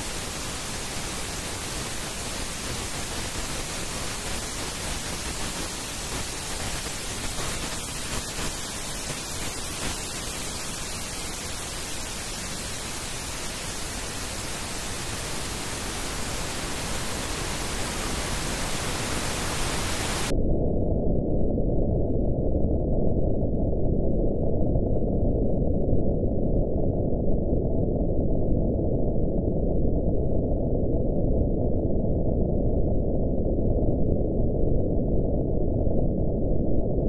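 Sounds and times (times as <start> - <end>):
pink noise hiss: 0.0 - 20.3
low noise rumble: 0.0 - 27.8.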